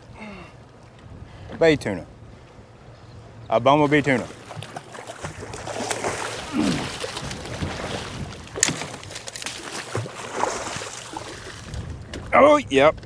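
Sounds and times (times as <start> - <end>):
fish thrashing and splashing: 4.2 - 12.2.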